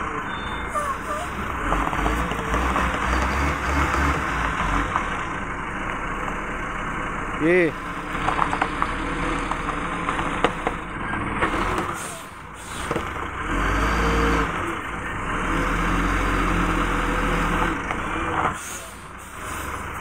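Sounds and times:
diesel truck engine revving: 0:00.0 - 0:20.0.

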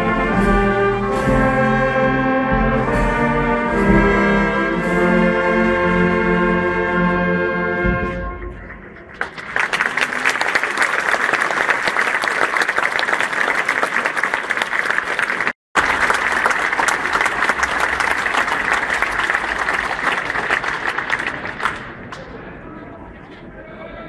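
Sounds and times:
crowd applauding: 0:09.0 - 0:22.4.

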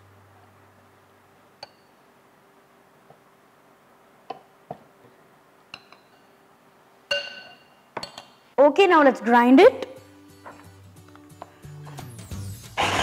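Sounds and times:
spoon tapping glass bowl: 0:01.6 - 0:01.9, 0:05.7 - 0:06.3, 0:07.1 - 0:08.3.

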